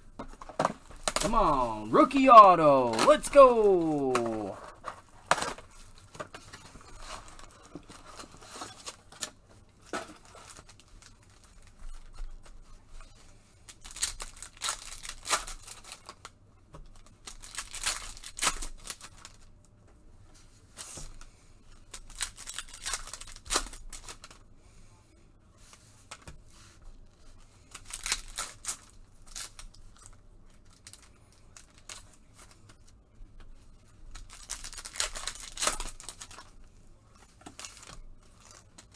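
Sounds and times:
card pack wrappers ripping: 1.0s - 4.6s, 13.7s - 16.3s, 17.2s - 19.4s, 34.2s - 36.5s.

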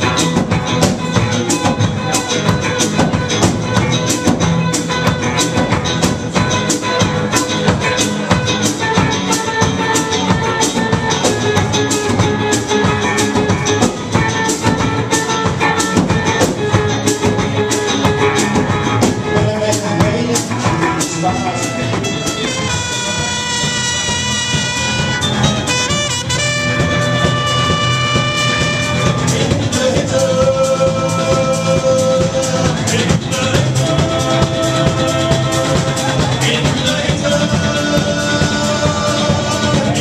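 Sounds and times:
drum kit beat: 0.0s - 40.0s
strummed guitars: 0.0s - 40.0s.

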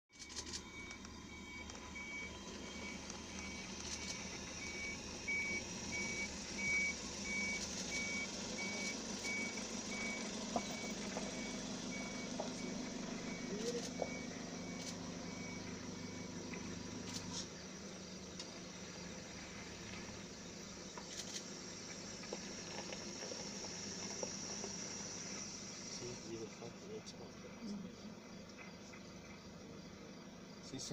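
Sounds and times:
high electronic warning beep: 0.2s - 17.4s
vehicle engine idling: 0.2s - 30.9s.

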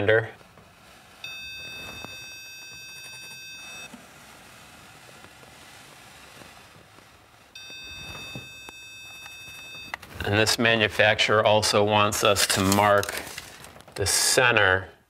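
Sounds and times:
stud finder high beep: 1.2s - 3.9s, 7.6s - 10.1s.

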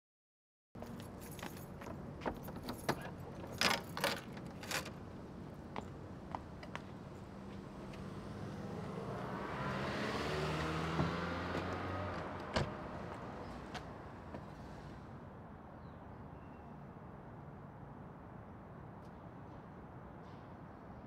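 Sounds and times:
car driving past: 7.9s - 15.1s.

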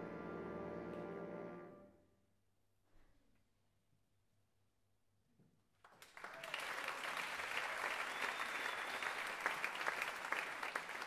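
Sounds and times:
audience applause: 5.9s - 11.0s.

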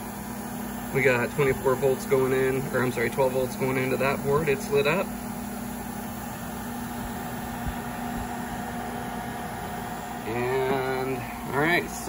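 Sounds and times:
cooling fans whirring: 0.0s - 12.0s
low electrical hum: 0.0s - 12.0s.

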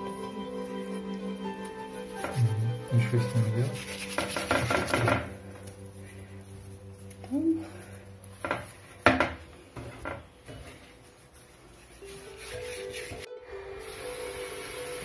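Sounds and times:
leaves crackling in hands: 0.0s - 9.1s
background music with held notes: 0.0s - 15.0s.

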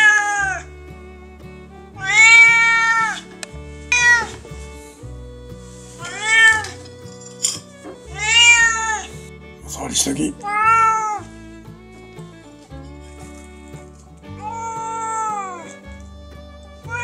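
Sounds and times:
cat meowing: 0.0s - 0.7s, 2.0s - 3.3s, 3.9s - 4.4s, 6.0s - 6.9s, 7.8s - 9.1s, 10.3s - 11.3s, 14.4s - 15.8s.

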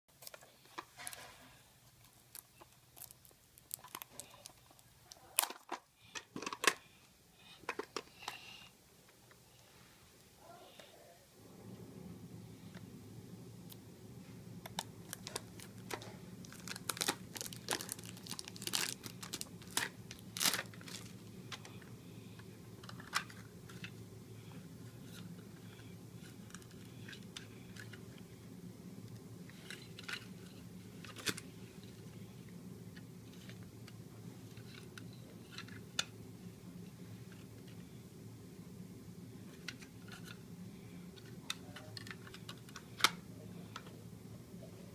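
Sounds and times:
steady low hum: 0.1s - 44.9s
plastic wrapper crinkling: 2.3s - 5.8s, 14.7s - 21.7s.

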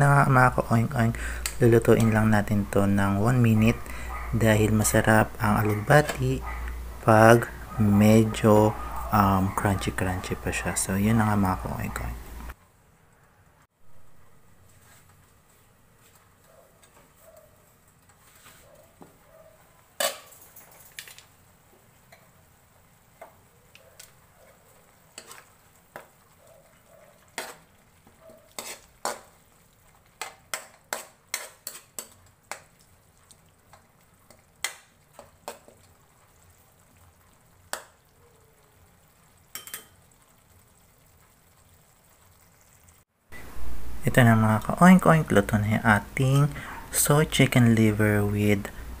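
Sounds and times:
faint sizzle: 0.0s - 49.0s
metal spatula scraping wok: 25.1s - 25.6s, 28.5s - 29.4s, 30.2s - 32.2s.

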